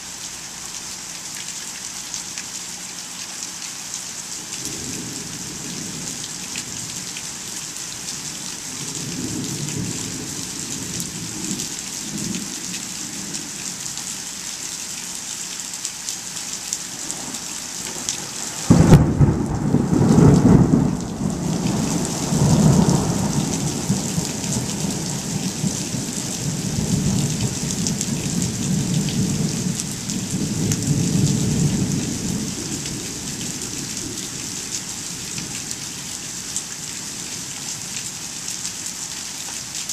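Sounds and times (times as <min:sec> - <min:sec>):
steady rain falling: 0:00.0 - 0:39.9
thunderclap and rumbling: 0:18.7 - 0:34.2.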